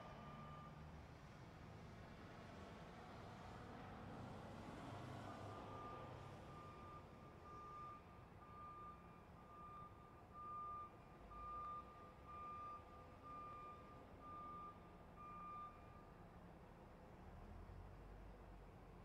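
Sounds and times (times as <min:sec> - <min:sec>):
truck reversing alarm beeping: 0:00.2 - 0:00.8, 0:05.5 - 0:16.1.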